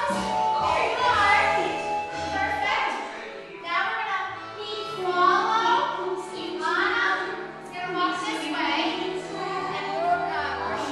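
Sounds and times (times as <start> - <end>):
backing music with low bass: 0.0 - 10.9.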